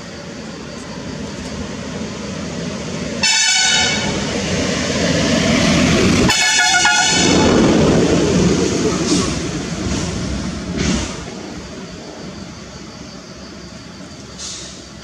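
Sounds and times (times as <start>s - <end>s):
vehicle horn blasts: 3.2s - 4.2s, 6.3s - 7.4s
vehicle approaching rumble: 4.0s - 15.0s.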